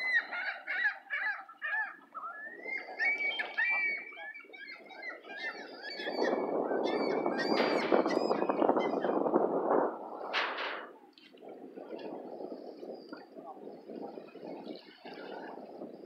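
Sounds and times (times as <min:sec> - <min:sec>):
gulls squawking: 0:00.0 - 0:09.3.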